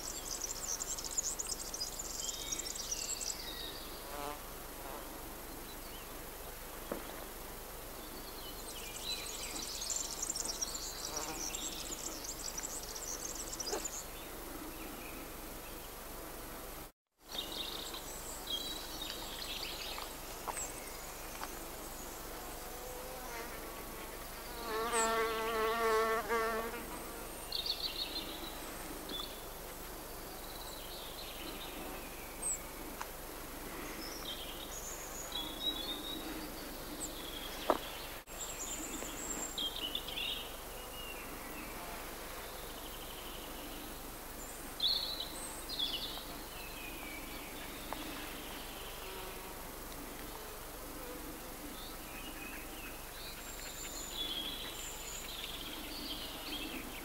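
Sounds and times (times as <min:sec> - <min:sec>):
small birds singing: 0:00.0 - 0:04.4, 0:07.9 - 0:16.0, 0:17.3 - 0:23.5, 0:24.4 - 0:33.0, 0:33.7 - 0:49.5, 0:51.6 - 0:57.0
flying insect buzzing: 0:22.5 - 0:27.2.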